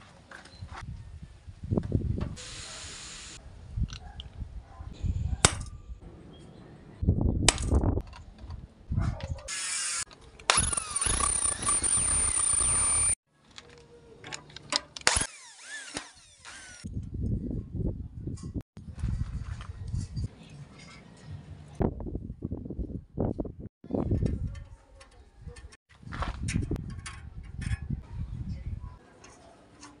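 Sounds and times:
electric drill whining: 9.5 - 13.2, 15.1 - 16.9.

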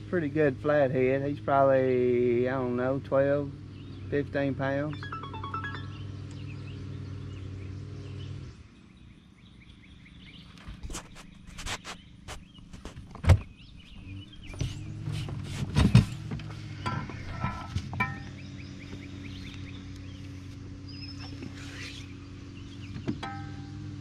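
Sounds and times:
knocks and thumps on aluminum boat: 14.5 - 18.4.

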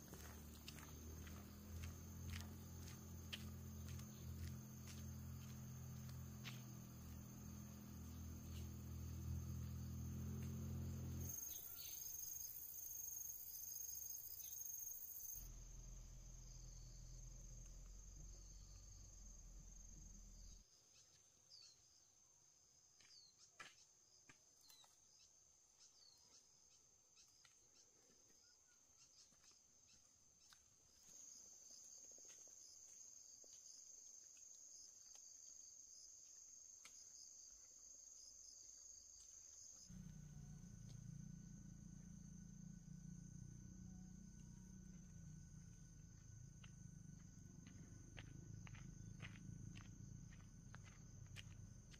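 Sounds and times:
crickets trilling: 0.0 - 20.6, 29.8 - 51.9
low hum: 15.4 - 20.6, 39.9 - 51.9.

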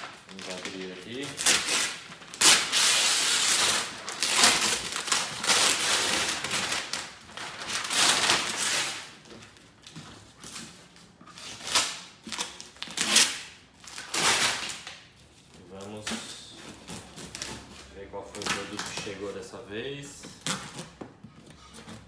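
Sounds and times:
paper tearing and crumpling: 0.0 - 9.1, 15.6 - 19.3
blade slitting packing tape: 1.3 - 7.0, 11.4 - 15.0, 15.9 - 19.1.

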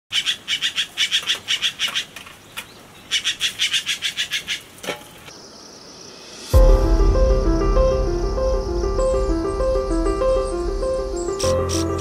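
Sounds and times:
magpie rapid calls: 0.1 - 2.2, 3.1 - 4.7.

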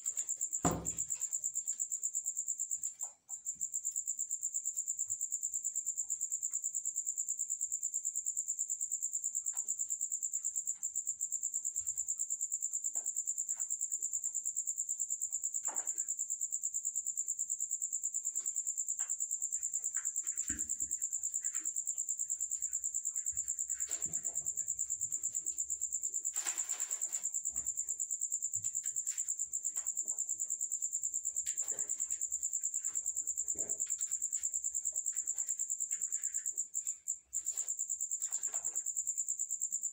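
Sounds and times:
crickets chirping: 0.0 - 39.9
faint rustles and knocks: 18.1 - 39.4.

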